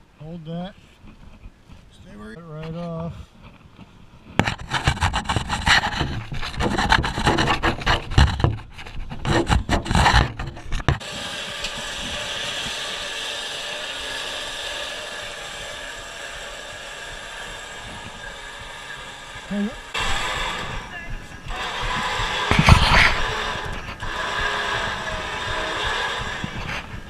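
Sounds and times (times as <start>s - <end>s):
climbing on metal ladder: 4.4s - 11.0s
electric winch reeling cable: 9.3s - 27.0s.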